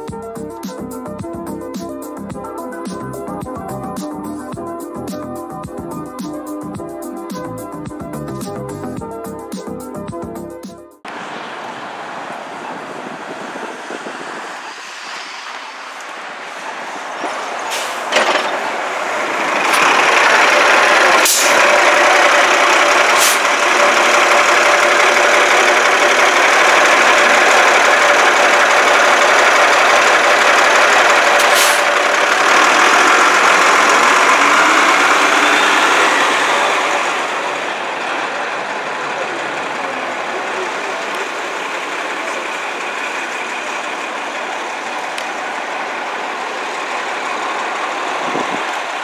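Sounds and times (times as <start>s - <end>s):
bus engine and road noise: 0.0s - 49.0s
air brake hisses: 17.6s - 18.2s, 21.1s - 21.6s, 23.1s - 23.5s, 31.4s - 31.9s.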